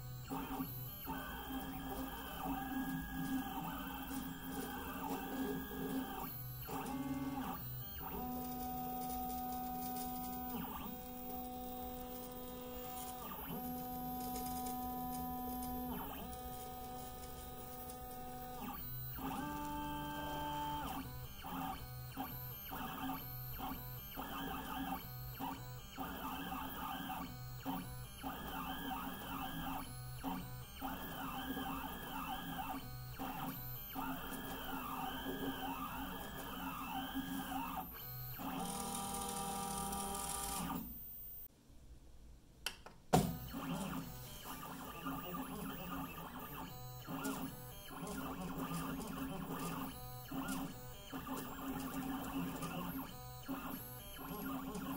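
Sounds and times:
stepper motors whining tones: 0.0 - 40.9.

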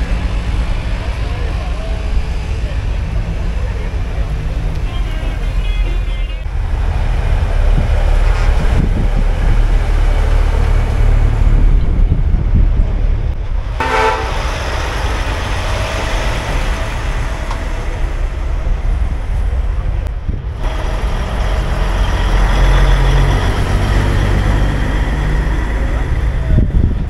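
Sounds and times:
truck diesel engines rumbling: 0.0 - 27.0
vehicle horn toot: 13.8 - 14.4.

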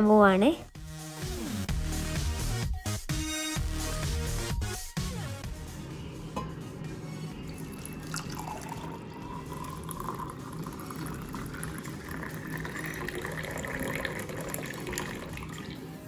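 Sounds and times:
tea pouring into a glass: 7.5 - 15.9.

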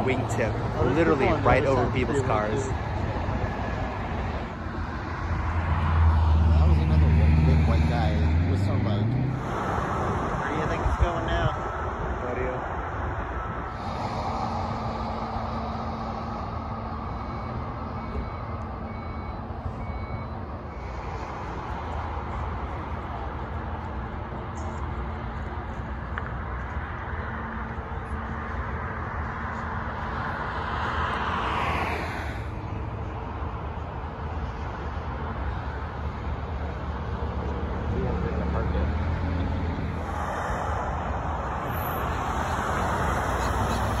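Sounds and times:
vehicle passing close whoosh: 0.0 - 18.0, 29.7 - 33.0, 37.8 - 44.0
highway traffic rumble: 0.0 - 44.0.

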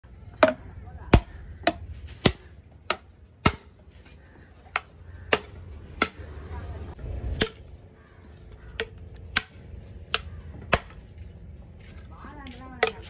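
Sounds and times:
machete chopping conch shell: 0.4 - 3.8, 4.7 - 6.3, 8.7 - 11.0.

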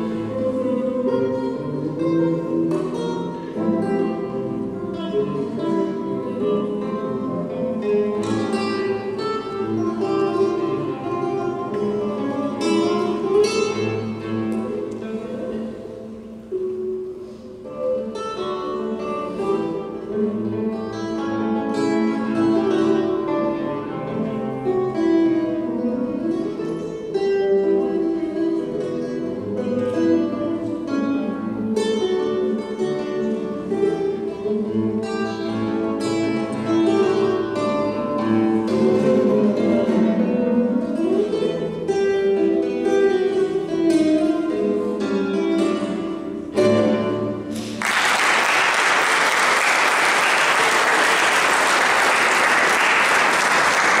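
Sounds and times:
solo classical guitar: 0.0 - 54.0
audience applause: 47.5 - 54.0.

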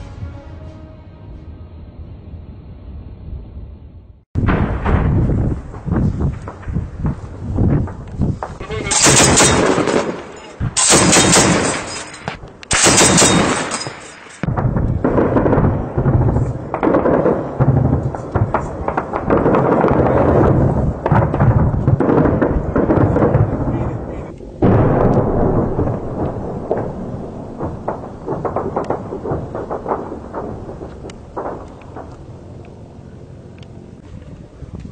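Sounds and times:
dull crackle of gunfire: 4.4 - 33.5
heavy machine gun bursts: 8.6 - 14.5.

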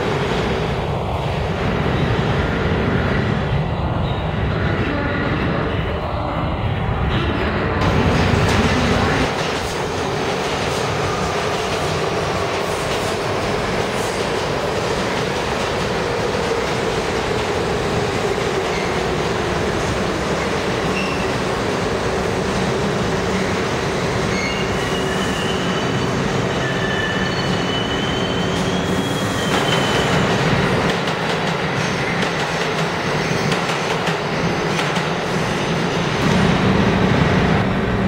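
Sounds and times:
subway train rumbling past: 0.0 - 38.0
wheel squeals: 24.3 - 30.2.

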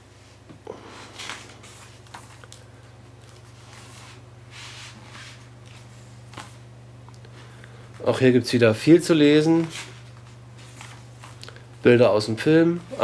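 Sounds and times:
steady low hum: 0.0 - 13.0
paper pages rustling: 1.1 - 6.6, 9.3 - 11.8.

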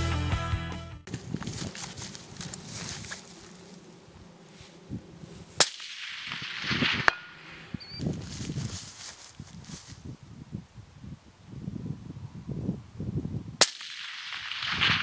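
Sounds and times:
suppressed rifle shot: 5.6 - 7.9, 13.6 - 15.0.

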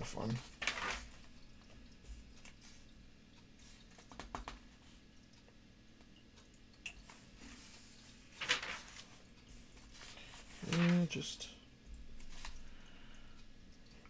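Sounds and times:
page turning rustle: 0.2 - 1.4, 7.0 - 11.3, 12.2 - 12.6
paper crinkling: 0.2 - 1.4, 7.1 - 11.2.

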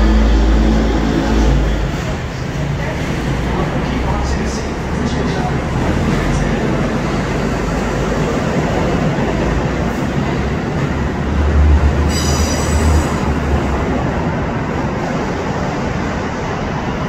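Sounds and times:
train wheels rolling on rail: 0.0 - 17.0
high wheel squeal: 12.1 - 13.3.

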